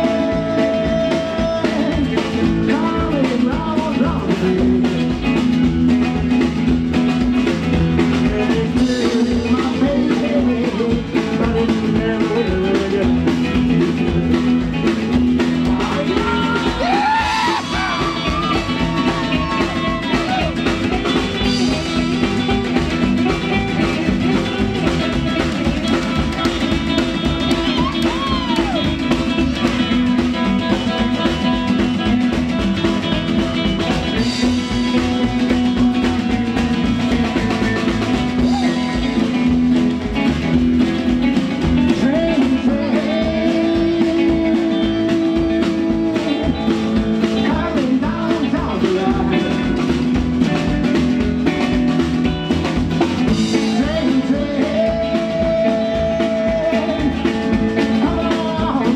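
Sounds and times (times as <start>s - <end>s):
live rock and roll band: 0.0s - 58.9s.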